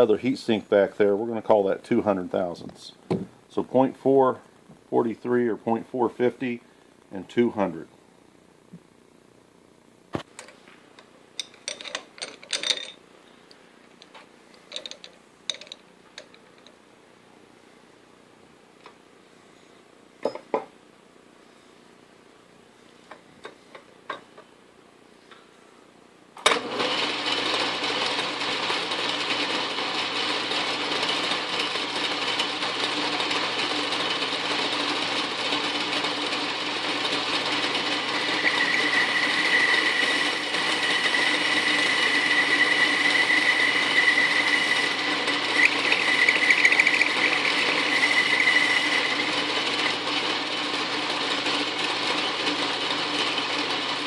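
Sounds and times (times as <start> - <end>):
metal lathe running: 26.6 - 54.0
thin high whine: 38.1 - 49.4.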